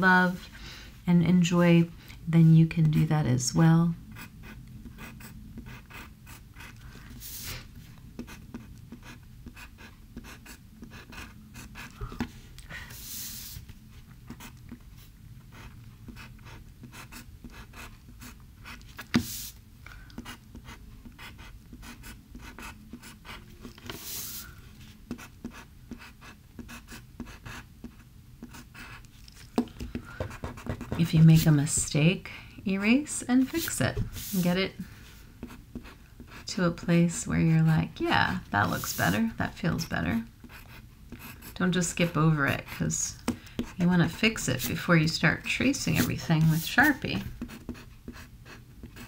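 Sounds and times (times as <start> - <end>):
pencil scratching on paper: 4.2 - 7.6, 8.2 - 12.0, 14.3 - 14.8, 15.5 - 19.5, 20.2 - 24.5, 25.1 - 32.0, 35.4 - 36.6, 37.2 - 49.0.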